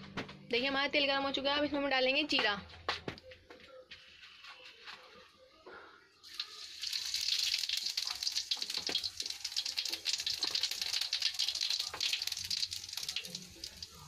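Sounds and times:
seeds sizzling in hot oil: 0:06.2 - 0:14.0.

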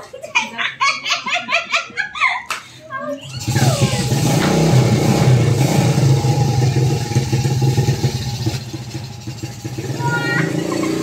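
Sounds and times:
motorcycle engine running: 0:03.3 - 0:11.0.

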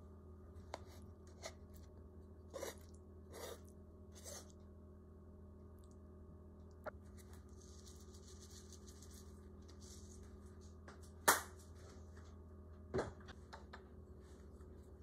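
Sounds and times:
steady low hum: 0:00.0 - 0:15.0
seeds sprinkling crackle: 0:07.0 - 0:10.8.

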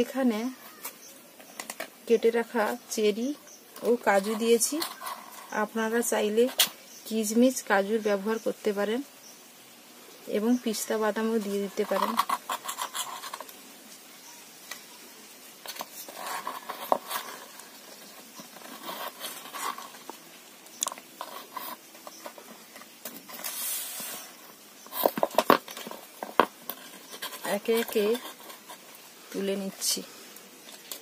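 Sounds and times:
scrape or rustle: 0:03.8 - 0:07.0, 0:10.5 - 0:31.0.

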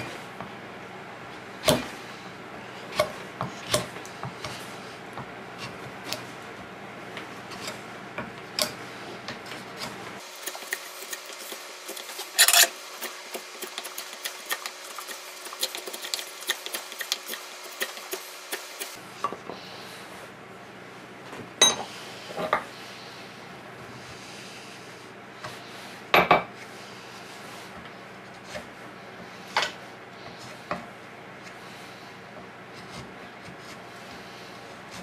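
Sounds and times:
file scraping wood: 0:07.2 - 0:07.9, 0:08.6 - 0:19.0, 0:32.7 - 0:35.0.

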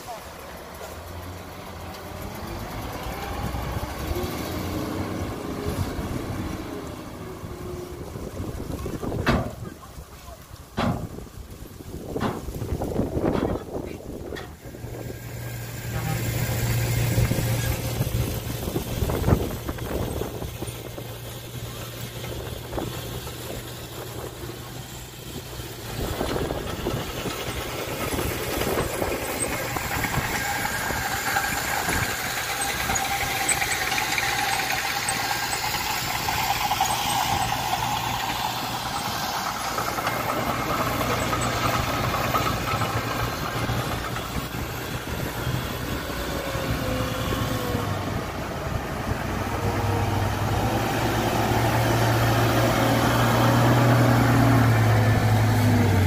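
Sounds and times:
dump truck approaching: 0:00.0 - 0:56.0
low engine hum: 0:00.0 - 0:56.0.

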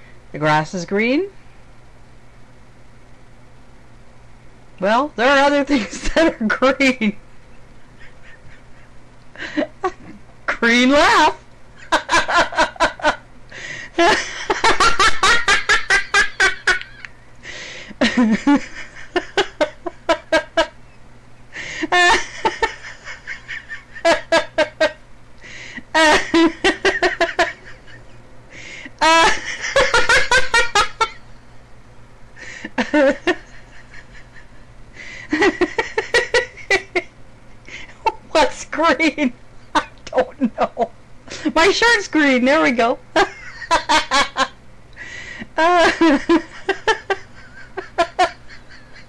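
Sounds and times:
woman laughing hard: 0:07.9 - 0:10.2, 0:11.8 - 0:17.1, 0:18.0 - 0:20.8, 0:21.6 - 0:25.0, 0:25.9 - 0:28.2, 0:29.0 - 0:31.2, 0:32.4 - 0:37.1, 0:39.7 - 0:41.6, 0:43.2 - 0:49.0
woman breathing: 0:13.5 - 0:14.0, 0:17.4 - 0:18.0, 0:21.5 - 0:21.9, 0:25.4 - 0:25.9, 0:28.5 - 0:29.0, 0:32.4 - 0:32.8, 0:34.9 - 0:35.4, 0:37.6 - 0:38.0, 0:45.0 - 0:45.6.

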